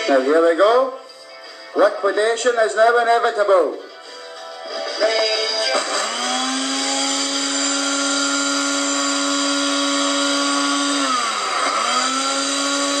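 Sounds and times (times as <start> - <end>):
blender motor whining: 5.1 - 13.0.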